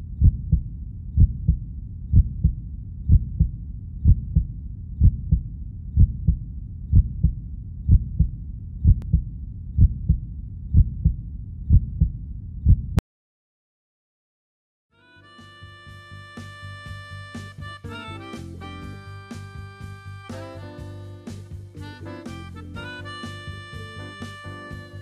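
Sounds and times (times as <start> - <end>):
heartbeat thuds: 0.0 - 13.0.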